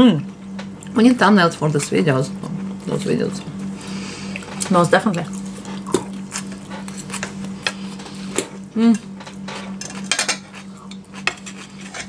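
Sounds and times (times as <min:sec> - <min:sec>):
steady low hum: 0:00.0 - 0:12.0
person humming: 0:08.7 - 0:09.2
forks clinking on plates: 0:09.2 - 0:12.0.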